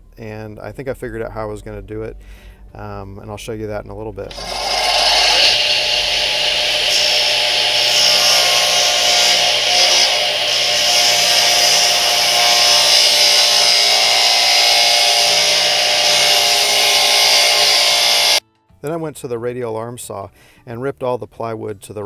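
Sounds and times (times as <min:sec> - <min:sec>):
saw ripping plywood: 0:04.3 - 0:18.4.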